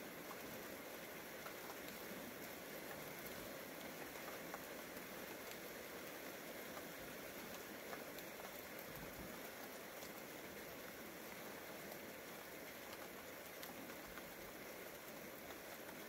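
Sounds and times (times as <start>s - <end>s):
raindrop ticks: 0.0s - 16.0s
steady rain hiss: 0.0s - 16.0s.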